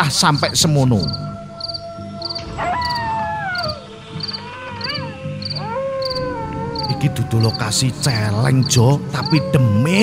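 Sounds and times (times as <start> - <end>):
crickets chirping: 0.0 - 9.8
eerie wailing tones: 2.3 - 8.6.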